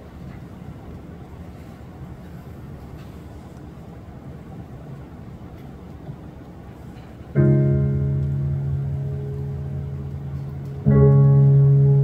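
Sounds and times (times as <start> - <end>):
low room rumble: 0.0 - 12.0
instrument chord ringing out: 7.4 - 12.0.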